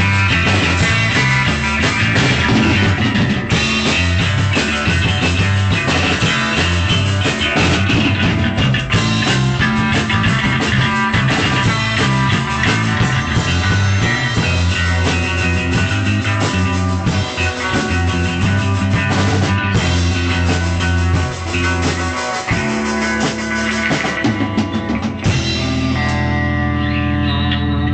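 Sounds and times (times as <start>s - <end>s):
drum kit played hard: 0.0s - 27.3s
electric guitar: 0.0s - 27.9s
loud rock music: 0.0s - 27.9s.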